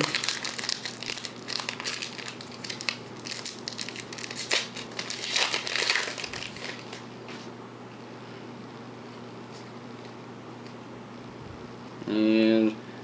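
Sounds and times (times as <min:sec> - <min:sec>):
foil wrapper crinkling: 0:00.0 - 0:07.1.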